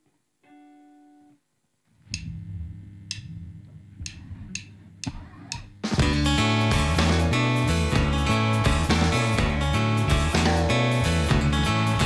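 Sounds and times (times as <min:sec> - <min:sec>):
bass and guitar notes: 0:02.0 - 0:12.0
steady tone: 0:02.1 - 0:05.8
drum kit hits: 0:04.1 - 0:11.6.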